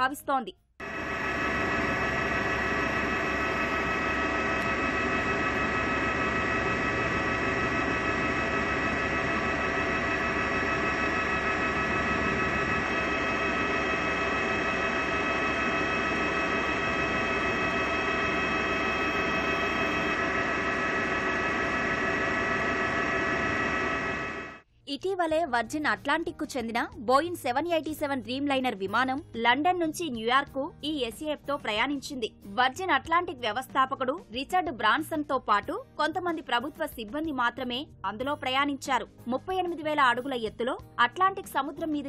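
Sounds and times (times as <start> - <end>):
jet engines droning with whine: 0.8 - 24.6.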